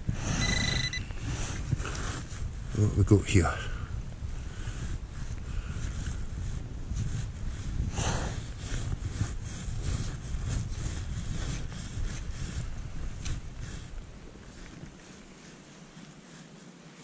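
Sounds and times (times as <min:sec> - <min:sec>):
wind buffeting microphone: 0:00.0 - 0:16.4
scrape: 0:05.8 - 0:17.0.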